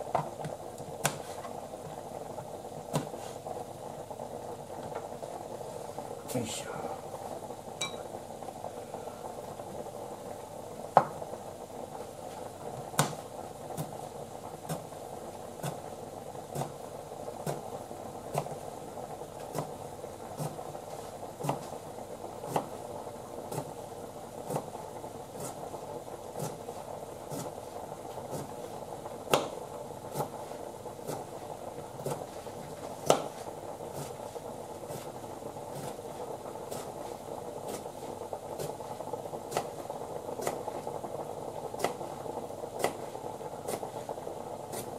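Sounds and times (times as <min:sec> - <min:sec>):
simmering pot hissing: 0:00.0 - 0:44.9
knife chopping on cutting board: 0:00.2 - 0:01.3, 0:02.9 - 0:03.1, 0:13.0 - 0:13.2, 0:29.3 - 0:29.5, 0:33.0 - 0:33.3, 0:40.4 - 0:40.6, 0:41.8 - 0:42.0, 0:43.7 - 0:43.9.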